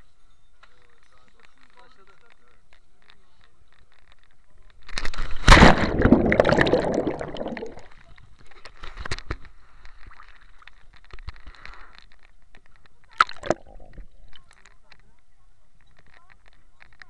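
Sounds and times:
water sloshing: 5.0s - 8.0s, 13.2s - 14.5s
water bubbling and gurgling: 5.5s - 8.0s, 13.2s - 14.4s.

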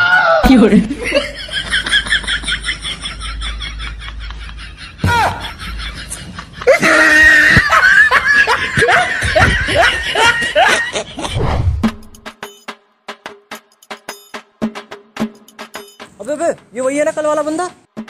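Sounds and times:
person laughing loudly: 0.4s - 11.4s
clicking percussion beat: 11.8s - 16.8s.

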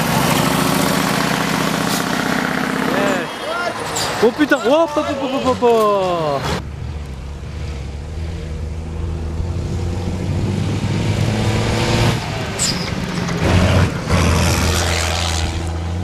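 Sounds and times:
truck engine running hard: 0.0s - 4.3s.

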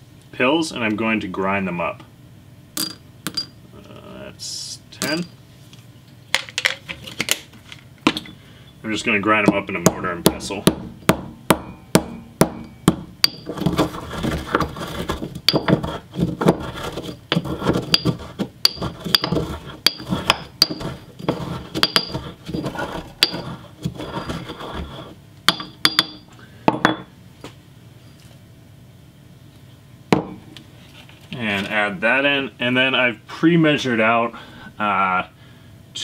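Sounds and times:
pestle grinding in mortar: 9.4s - 27.1s
pestle clinking against bowl: 9.9s - 13.8s, 15.4s - 24.7s, 25.5s - 26.2s
sharp knocks: 9.9s - 14.7s.

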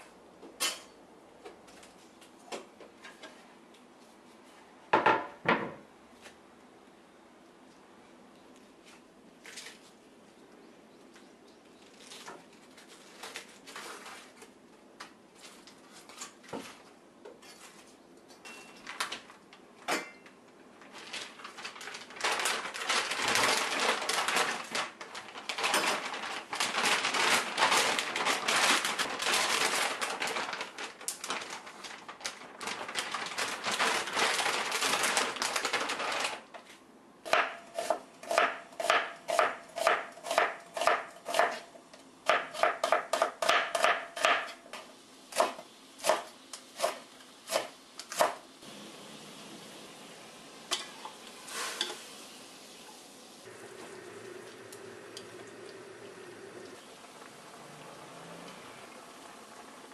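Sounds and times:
plastic bag crinkling: 11.8s - 14.4s, 20.7s - 36.7s.

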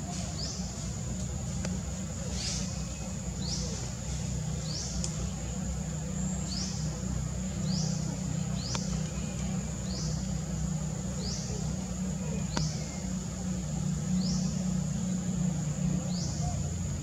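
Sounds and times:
insects droning: 0.0s - 17.0s
faint clicks: 4.9s - 5.2s, 8.6s - 9.2s, 12.5s - 12.8s.

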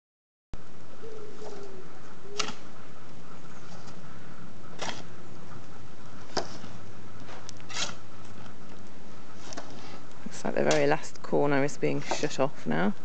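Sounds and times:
spade scraping earth: 4.7s - 5.1s, 6.2s - 8.4s, 9.3s - 11.1s, 11.9s - 12.4s.

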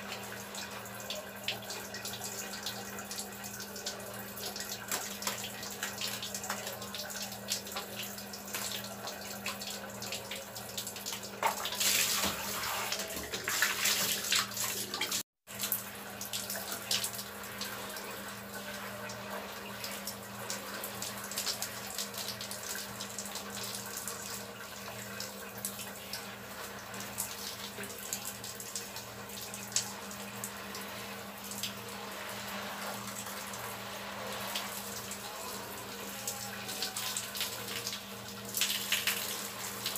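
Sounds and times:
shower water splashing: 0.0s - 39.9s.

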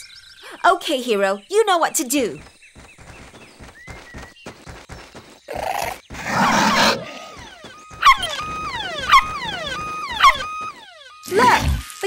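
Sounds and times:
cartoon puppy yelping barks: 8.0s - 8.4s, 9.0s - 9.4s, 10.2s - 10.6s.

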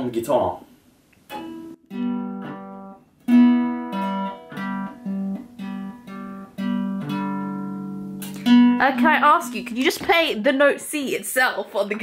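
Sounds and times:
guitar notes plucked: 1.3s - 10.3s.

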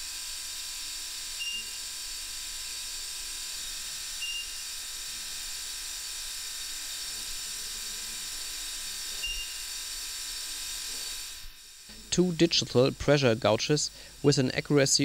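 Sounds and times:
steady hiss: 9.1s - 15.0s.

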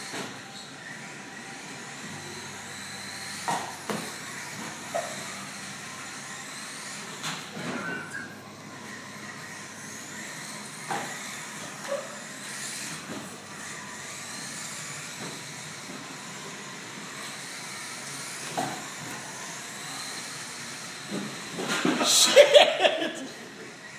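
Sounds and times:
motor whines: 0.0s - 23.9s
rc car motors and tyres hissing: 0.0s - 23.9s.

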